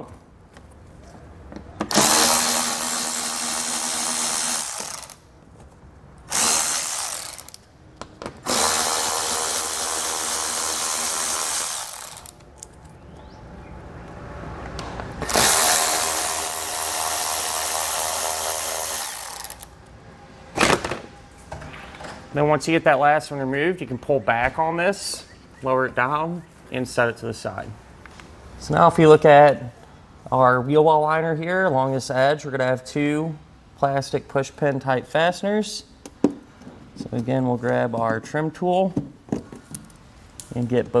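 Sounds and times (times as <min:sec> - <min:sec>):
electric ratchet whirring: 0:01.9 - 0:05.2, 0:06.3 - 0:07.7, 0:08.4 - 0:12.4, 0:15.2 - 0:19.8.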